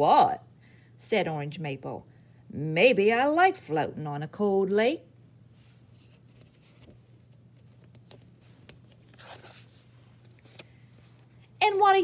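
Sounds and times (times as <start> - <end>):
paper page swishing: 7.6 - 11.6.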